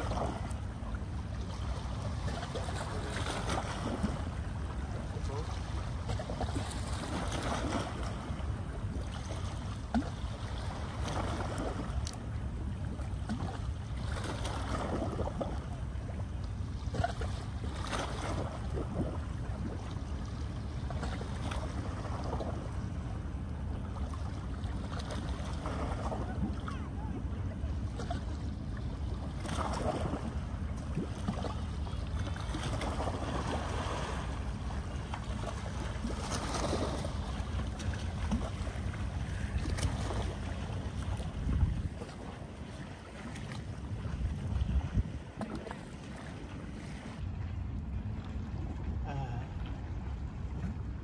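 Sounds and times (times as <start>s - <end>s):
wind rumble on microphone: 0.0s - 51.0s
kayak paddle splashing in water: 13.0s - 16.2s, 27.9s - 47.2s.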